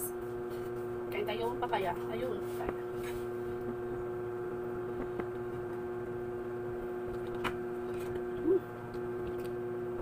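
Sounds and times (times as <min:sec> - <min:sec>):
steady hum: 0:00.0 - 0:10.0.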